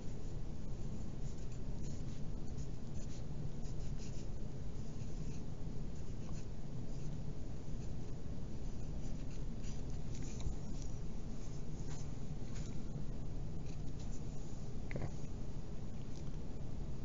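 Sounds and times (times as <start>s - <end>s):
low background noise: 0.0s - 17.0s
pencil writing on paper: 0.8s - 12.8s.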